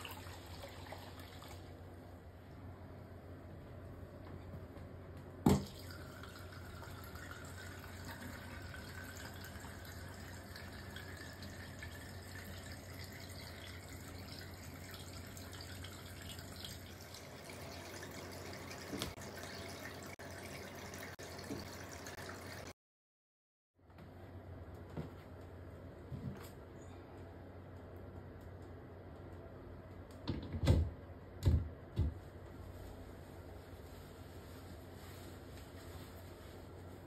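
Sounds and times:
water draining and splashing: 0.0s - 1.8s, 5.5s - 22.7s.

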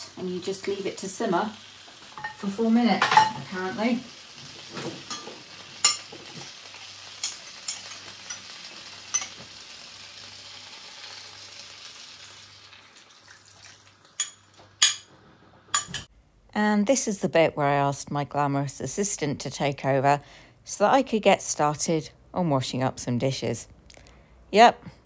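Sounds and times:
stir-fry sizzling in a pan: 0.0s - 16.1s.

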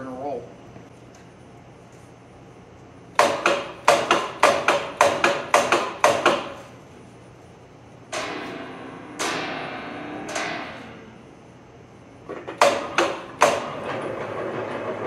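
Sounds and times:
sheet steel clanging: 8.1s - 11.6s.

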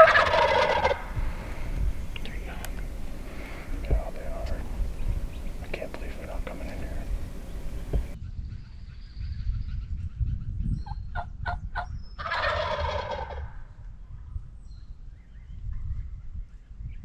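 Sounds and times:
turkey gobbling: 0.0s - 1.2s, 11.2s - 13.5s.

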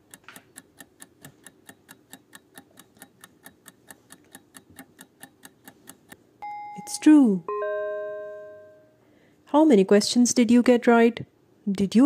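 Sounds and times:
countdown timer ticking: 0.0s - 9.0s.

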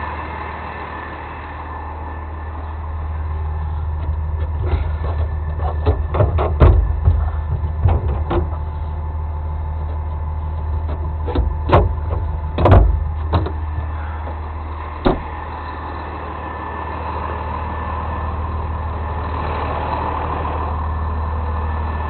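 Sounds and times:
truck engine idling: 0.0s - 22.0s
sharp knocks and clanks: 4.0s - 8.7s, 10.8s - 14.4s, 15.0s - 15.3s.

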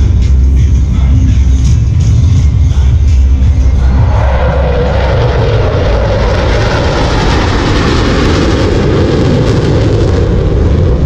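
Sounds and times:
airplanes engine drone: 0.0s - 11.0s.

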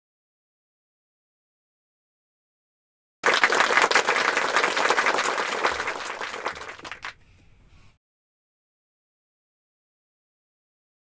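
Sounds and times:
crowd applause: 3.2s - 7.2s.

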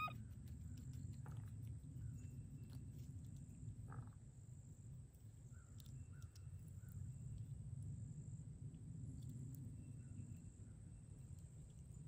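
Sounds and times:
faint bird chirps: 0.0s - 1.0s, 5.4s - 7.2s.

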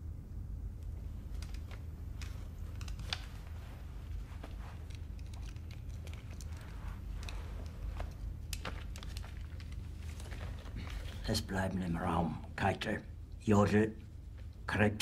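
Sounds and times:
steady low hum: 0.0s - 15.0s
faint clicks and rustles: 0.8s - 12.0s.

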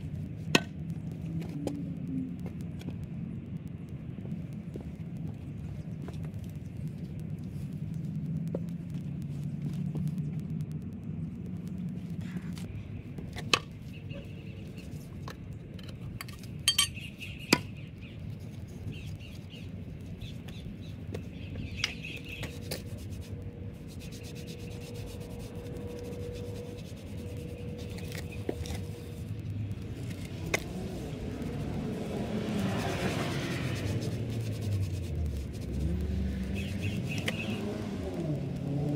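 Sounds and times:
low outdoor rumble: 0.0s - 38.9s
clinks and knocks of steel and wood: 15.2s - 17.7s.

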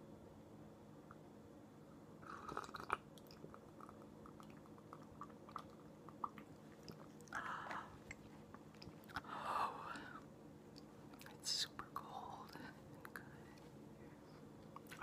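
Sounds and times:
person sipping and swallowing: 2.2s - 9.3s.

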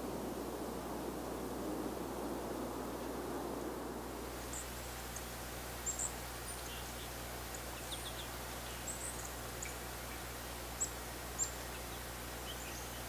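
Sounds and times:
soft outdoor hiss: 0.0s - 13.0s
songbirds chirping: 4.0s - 13.0s.

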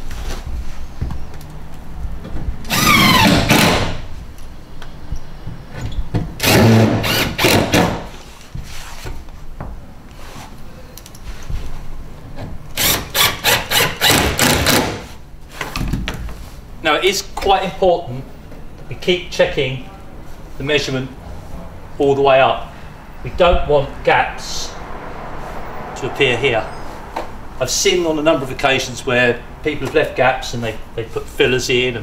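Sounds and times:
cordless drill whirring: 2.7s - 3.7s.

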